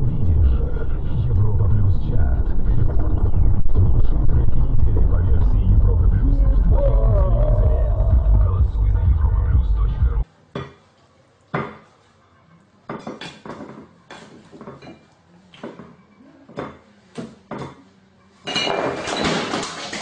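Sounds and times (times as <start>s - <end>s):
crockery clattering: 18.4s - 20.0s.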